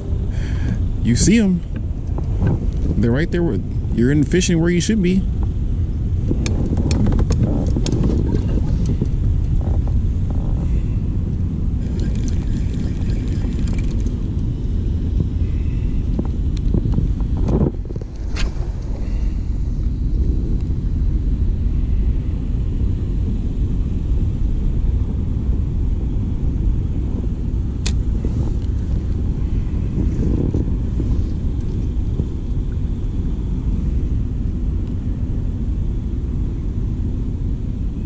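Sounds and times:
wind buffeting microphone: 0.0s - 38.0s
sharp click: 18.2s - 18.9s.

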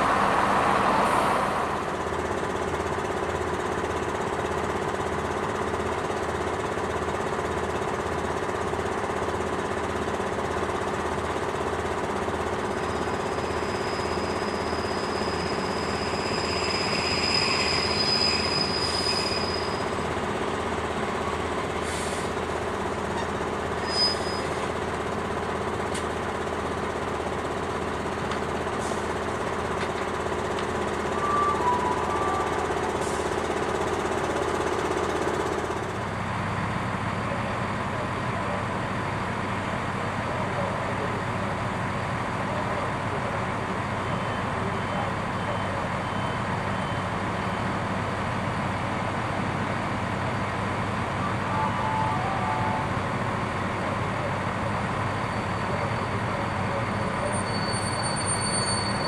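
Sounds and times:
diesel railcar engine humming: 0.0s - 59.0s
diesel train idling rumble: 0.0s - 59.0s
faint short beeps: 31.2s - 32.7s.

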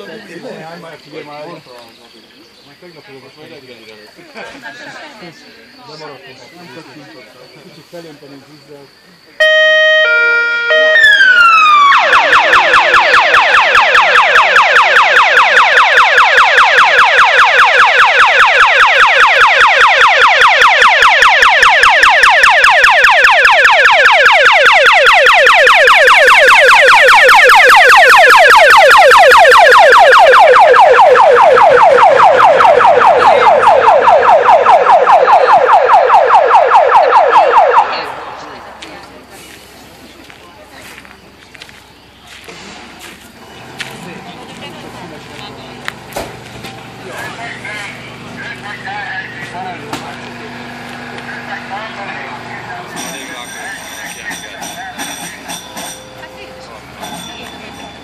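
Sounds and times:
fire engine siren: 9.4s - 39.0s, 46.7s - 58.0s.

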